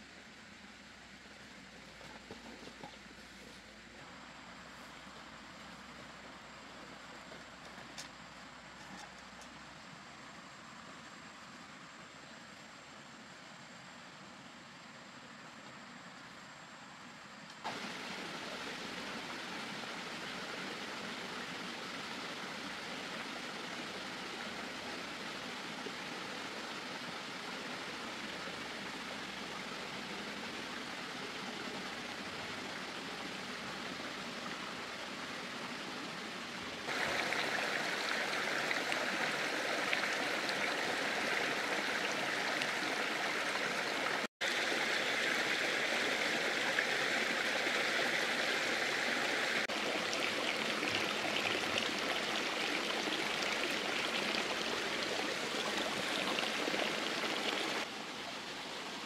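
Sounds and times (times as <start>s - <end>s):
flowing water rushing: 17.6s - 59.0s.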